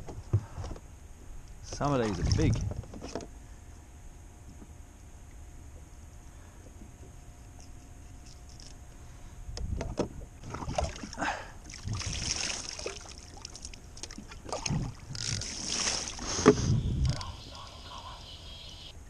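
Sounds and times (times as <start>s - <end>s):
water splashing and sloshing: 1.6s - 3.4s, 9.6s - 17.3s.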